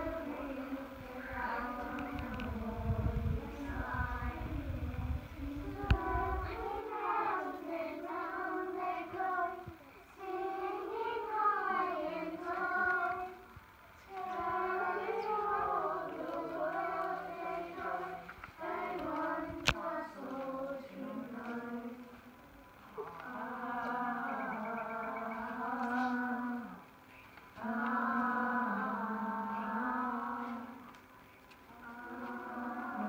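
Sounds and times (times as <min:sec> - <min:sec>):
high young voices singing: 0:00.0 - 0:33.0.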